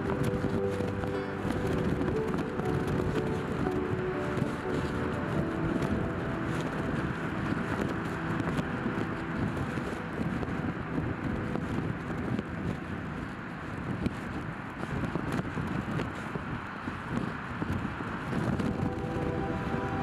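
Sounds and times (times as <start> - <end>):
soft held music notes: 0.0 - 14.3, 18.5 - 20.0
low outdoor rumble: 0.0 - 20.0.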